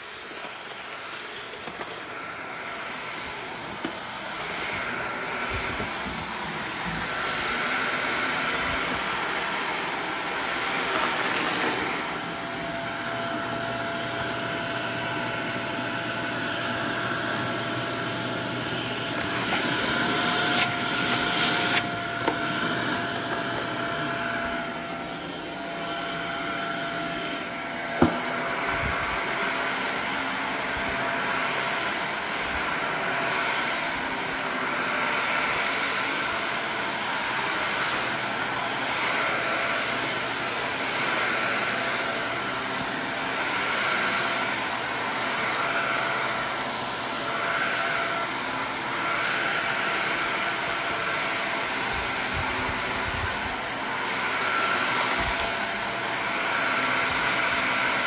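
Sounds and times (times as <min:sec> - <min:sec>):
vacuum cleaner on carpet: 0:00.0 - 0:58.0
air rushing through vacuum hose: 0:02.1 - 0:15.9, 0:16.6 - 0:30.0.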